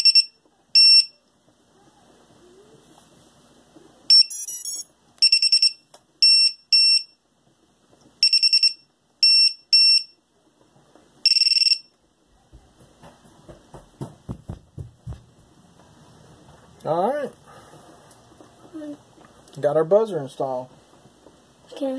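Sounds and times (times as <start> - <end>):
high-pitched electronic beeps: 4.1 - 7.2.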